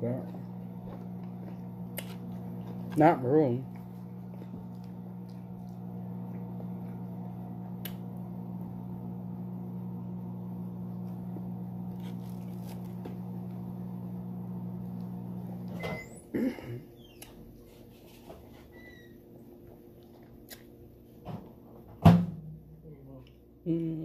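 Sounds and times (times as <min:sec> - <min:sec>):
microwave oven humming: 0:00.0 - 0:24.0
microwave beep: 0:15.6 - 0:16.3.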